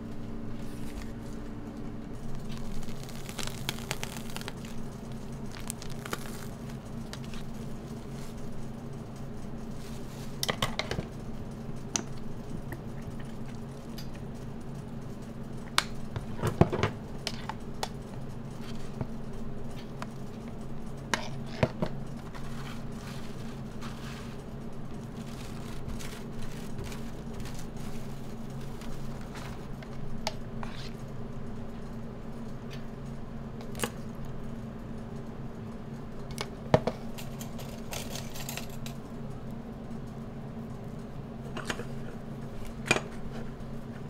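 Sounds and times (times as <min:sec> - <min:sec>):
low equipment hum: 0:00.0 - 0:44.0
utensils clattering on metal: 0:37.2 - 0:39.0.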